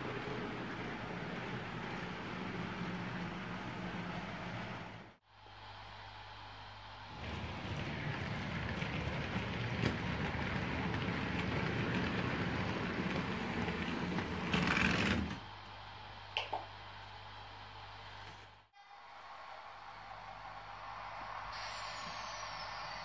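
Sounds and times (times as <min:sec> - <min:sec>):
model train wheels clattering: 0:07.3 - 0:15.4.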